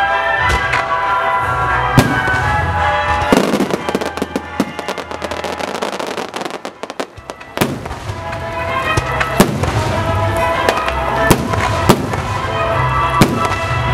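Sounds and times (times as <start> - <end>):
firework crackles: 0.6 - 13.9
firework bang: 1.9 - 5.3, 6.0 - 12.6, 13.2 - 13.8.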